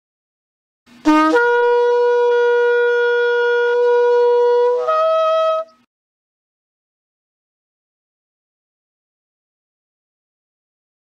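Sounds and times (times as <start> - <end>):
shofar blast: 1.0 - 5.8.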